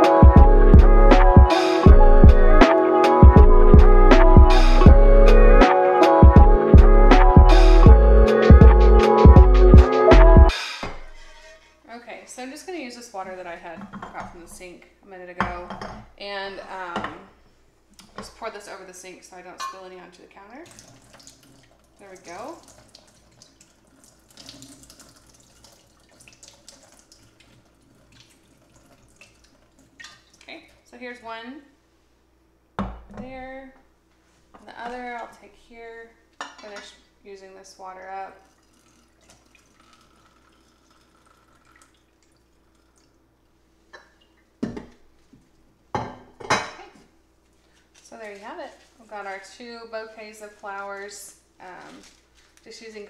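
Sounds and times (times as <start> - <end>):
water trickling into glass jar: 20.6 - 30.5, 38.4 - 43.2.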